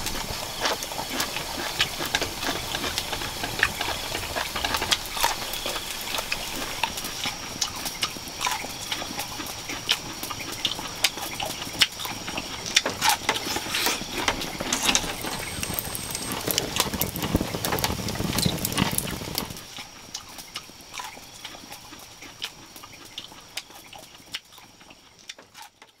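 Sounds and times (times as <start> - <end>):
wood fire crackling and popping: 11.8 - 19.8
steady high-pitched tone: 13.8 - 18.4.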